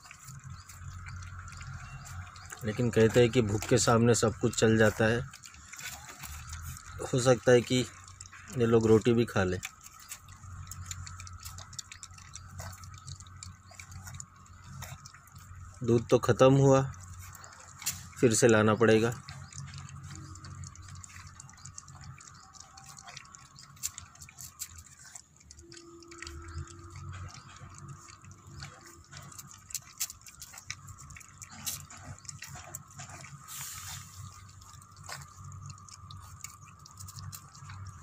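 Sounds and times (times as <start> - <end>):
puppies lapping and smacking: 0.0 - 38.0.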